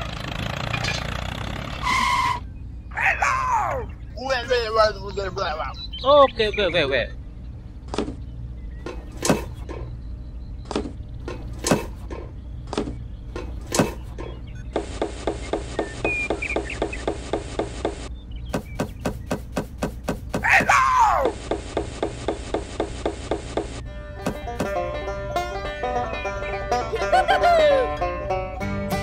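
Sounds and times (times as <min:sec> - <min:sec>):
steady low hum: 0:02.4 - 0:27.1
sharp irregular knocks and clicks: 0:10.7 - 0:20.5.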